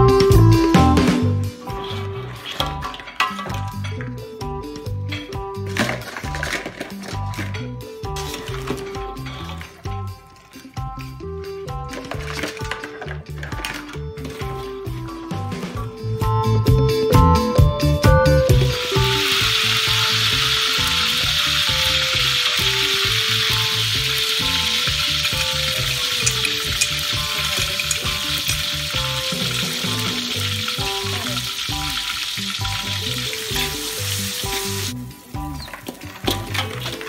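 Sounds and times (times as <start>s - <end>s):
music with steady beat: 0.0s - 2.0s, 10.0s - 37.0s
oil sizzling in a wok: 18.5s - 37.0s
metal ladle stirring in wok: 24.2s - 29.0s.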